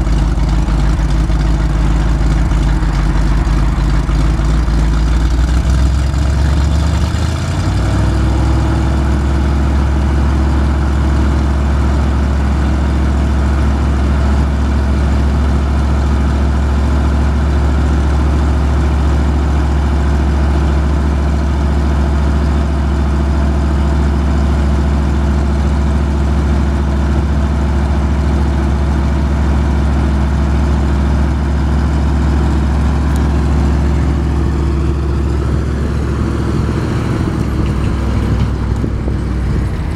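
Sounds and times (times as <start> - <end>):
truck engine running: 0.0 - 39.9.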